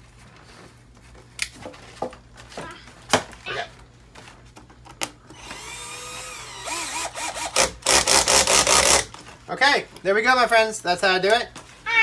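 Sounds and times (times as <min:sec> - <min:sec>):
cordless drill motor whining: 0:05.3 - 0:09.1.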